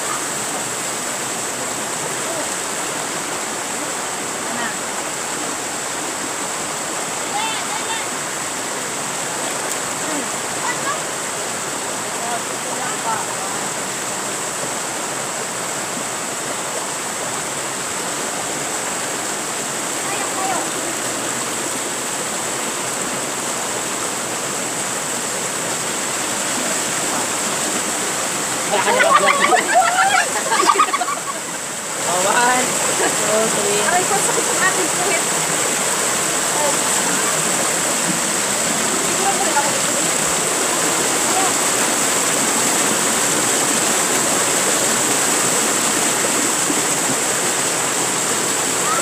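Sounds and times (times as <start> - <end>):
stream rushing over boulders: 0.0 - 49.0.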